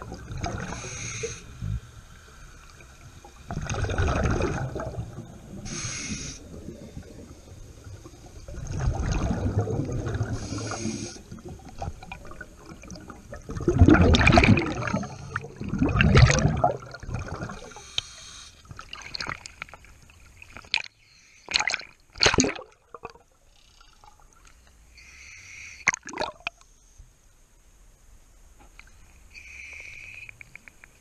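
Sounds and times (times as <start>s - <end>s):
water sloshing and gurgling: 0.0s - 24.9s, 25.8s - 26.6s
water splashes: 2.7s - 18.0s, 18.6s - 20.9s, 21.5s - 23.3s, 25.8s - 26.5s.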